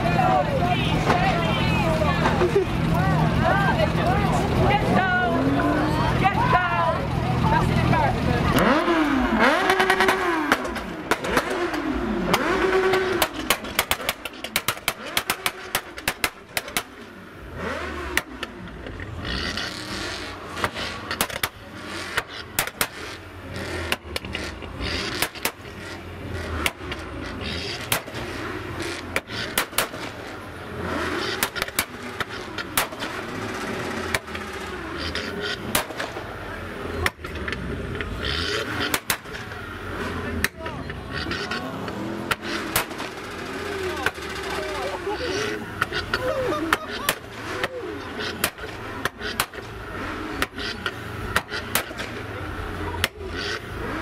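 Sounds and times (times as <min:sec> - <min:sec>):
car engine revving in blips: 0:00.0 - 0:54.0
sharp cracks: 0:09.6 - 0:17.0, 0:20.6 - 0:23.2, 0:23.8 - 0:25.9, 0:26.5 - 0:30.3, 0:31.0 - 0:36.4, 0:37.0 - 0:39.6, 0:40.4 - 0:45.0, 0:45.8 - 0:49.8, 0:50.4 - 0:52.4.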